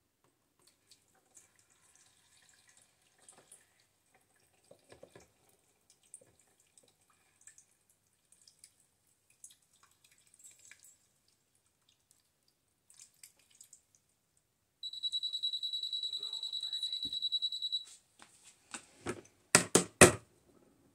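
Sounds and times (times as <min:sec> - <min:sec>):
water trickling and dripping: 0:00.6 - 0:14.1.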